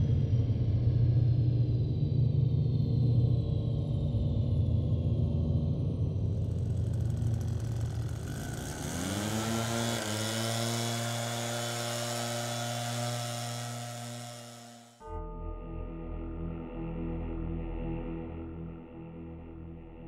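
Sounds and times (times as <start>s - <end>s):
low droning hum: 0.0s - 9.7s.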